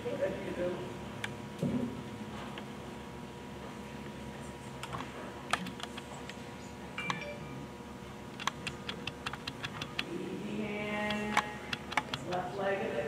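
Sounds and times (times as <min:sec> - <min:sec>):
low hum with faint whine: 0:00.0 - 0:13.0
sharp clicks and ticks: 0:08.4 - 0:10.1, 0:11.1 - 0:12.4.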